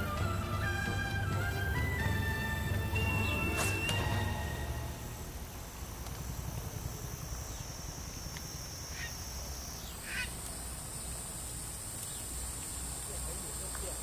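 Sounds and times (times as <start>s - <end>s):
low rumble: 0.0s - 7.5s
high-pitched insect drone: 0.8s - 14.0s
short animal calls: 10.0s - 10.4s.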